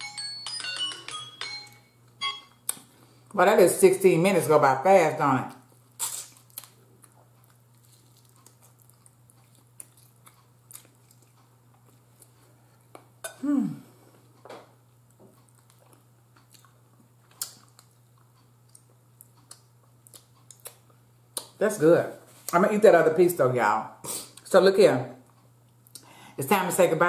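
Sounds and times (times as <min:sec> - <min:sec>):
steady low hum: 0:01.7 - 0:27.0
close chewing and biting: 0:05.9 - 0:12.4, 0:15.3 - 0:21.6.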